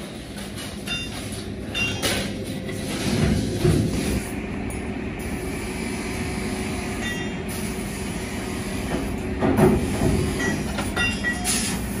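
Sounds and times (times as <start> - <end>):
low machinery rumble: 0.0 - 12.0
metal clanks: 0.5 - 2.4.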